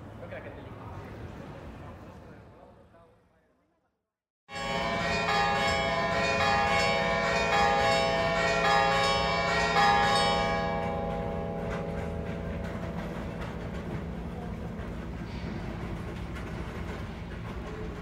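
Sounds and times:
church bells ringing: 4.5s - 15.2s.

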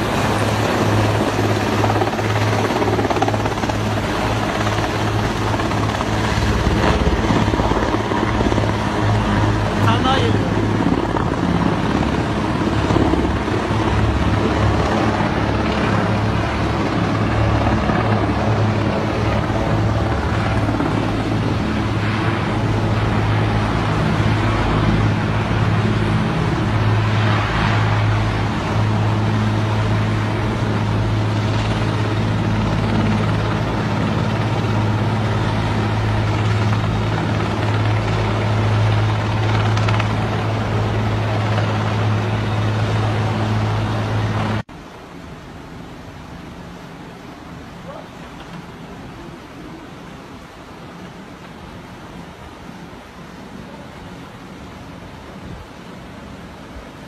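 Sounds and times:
helicopter flying past: 0.0s - 44.7s.

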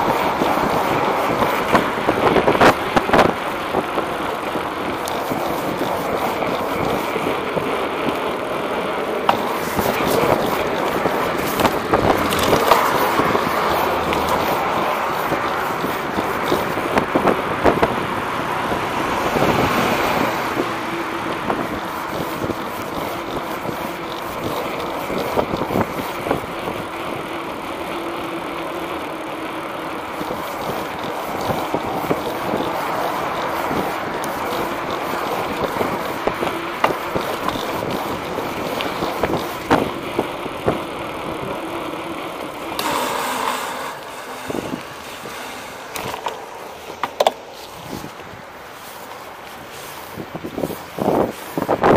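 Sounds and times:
skateboard wheels rolling on concrete: 0.0s - 51.9s
wheels clicking over pavement joints: 0.0s - 51.9s.

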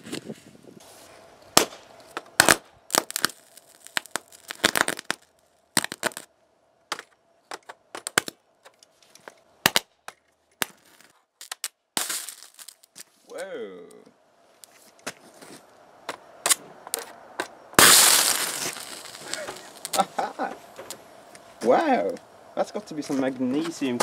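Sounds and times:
electric arcs snapping and crackling: 1.5s - 6.3s, 10.6s - 13.1s, 17.8s - 21.0s.

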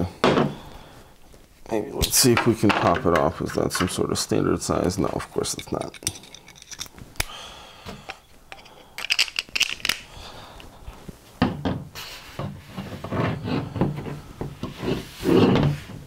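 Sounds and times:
rubbing and rustling: 8.6s - 11.4s, 12.1s - 16.0s.

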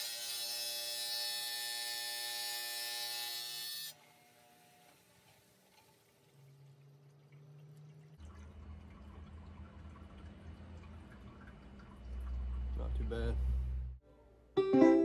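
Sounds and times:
water dripping and trickling: 5.1s - 13.1s
low rumble: 9.2s - 14.0s.

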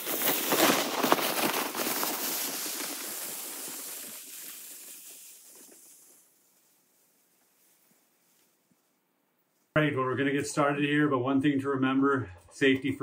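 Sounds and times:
sled scraping over snow: 0.0s - 6.8s
footsteps crunching in snow: 0.0s - 8.9s.

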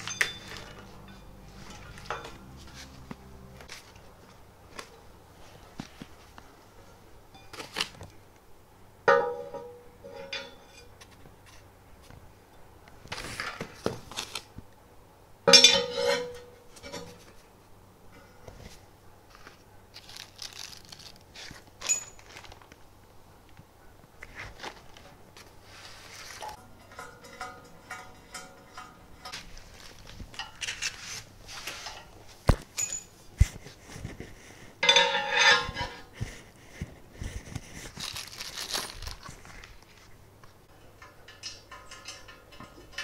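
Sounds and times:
metal frame parts knocking: 0.0s - 3.1s, 26.5s - 30.8s, 34.8s - 36.1s, 40.8s - 43.0s
plastic bags rustling: 13.1s - 14.6s, 19.3s - 22.9s, 24.2s - 26.6s, 29.3s - 32.8s, 35.6s - 40.1s.

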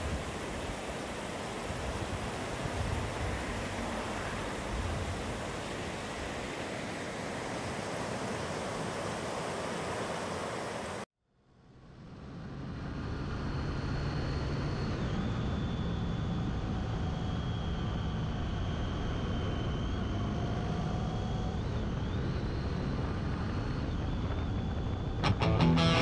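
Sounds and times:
faint high whine: 0.0s - 11.1s.

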